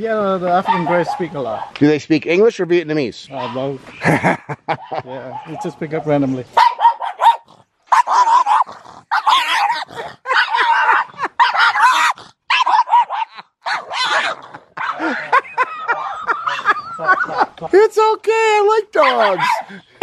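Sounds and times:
dog barking: 0:00.5 - 0:01.8, 0:03.4 - 0:03.7, 0:04.7 - 0:17.3, 0:19.0 - 0:19.8.

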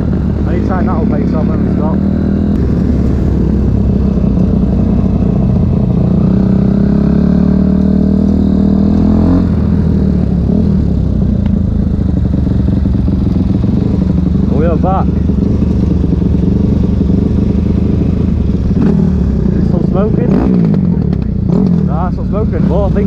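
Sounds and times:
dirt bike engine running: 0:00.0 - 0:23.0.

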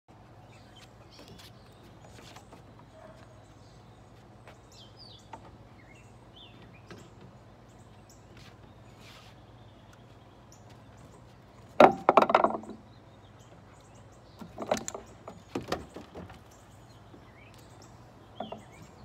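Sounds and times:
birds chirping: 0:00.1 - 0:19.0.

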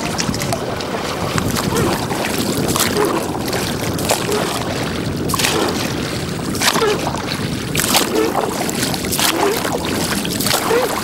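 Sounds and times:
paddle splashing through water: 0:00.0 - 0:11.0
wash of moving water: 0:00.0 - 0:11.0.

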